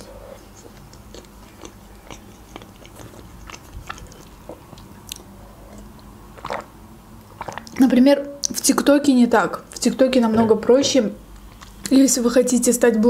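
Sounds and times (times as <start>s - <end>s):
chewing and biting food: 0.0s - 7.8s
wet mouth clicks: 0.5s - 7.8s.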